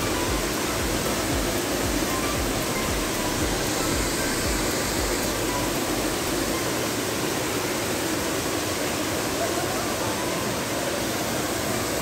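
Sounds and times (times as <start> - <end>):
waterfall pouring into pond: 0.0 - 12.0.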